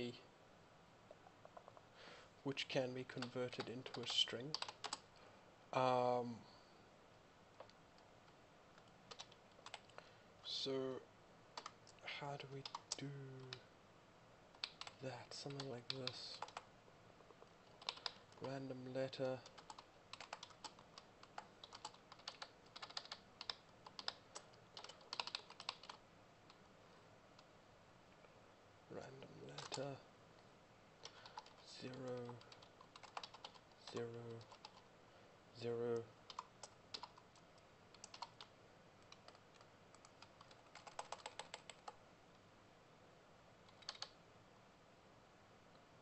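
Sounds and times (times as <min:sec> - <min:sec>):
computer keyboard typing: 0:03.2 - 0:05.1, 0:08.8 - 0:10.0, 0:11.6 - 0:12.0, 0:12.6 - 0:13.6, 0:14.5 - 0:26.0, 0:29.4 - 0:30.0, 0:31.0 - 0:34.8, 0:35.9 - 0:42.0, 0:43.7 - 0:44.2.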